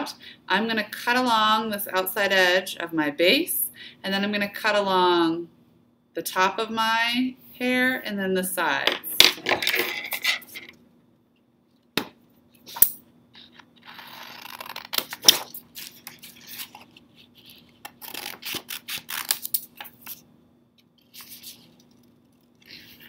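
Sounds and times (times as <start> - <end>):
paper rustling: 14.4 - 20.2, 21.0 - 23.0
scissors snipping paper: 17.8 - 20.2.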